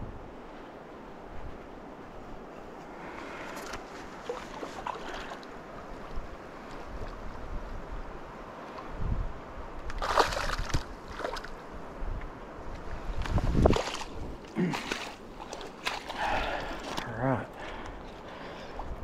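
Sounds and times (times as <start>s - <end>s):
wind rumble on microphone: 0.0s - 14.5s, 17.6s - 19.0s
fish splashing at water surface: 9.9s - 11.5s.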